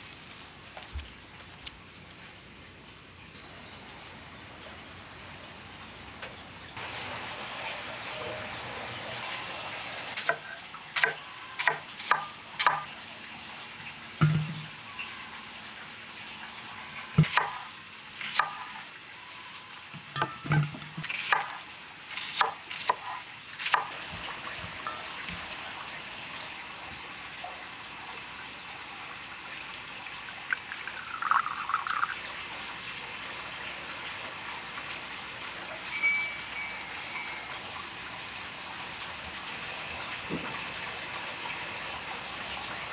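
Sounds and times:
knife chopping on wooden board: 11.0 - 12.9, 17.2 - 17.6.

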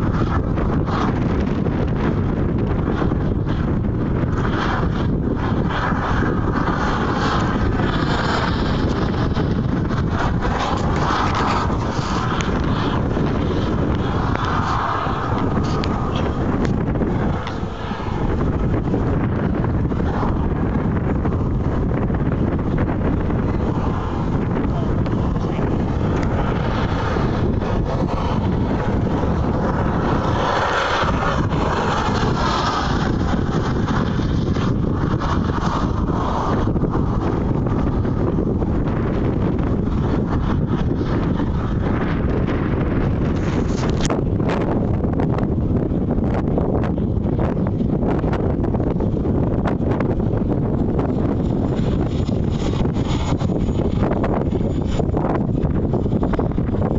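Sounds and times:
model helicopter flying overhead: 0.0 - 56.9
wind buffeting microphone: 0.0 - 56.9.

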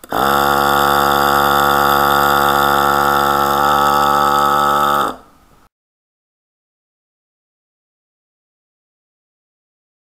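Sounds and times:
electric starter motor whine: 0.0 - 5.3.

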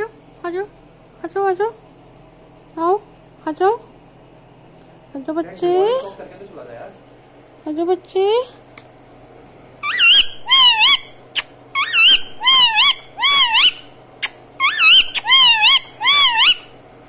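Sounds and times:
parakeet warbling calls: 9.8 - 16.8.

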